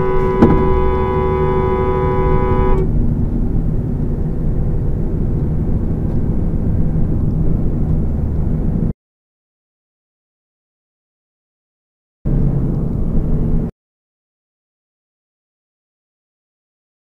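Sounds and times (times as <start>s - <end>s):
two-tone car horn blast: 0.0s - 2.9s
car driving at freeway speed: 0.0s - 9.0s, 12.3s - 13.7s.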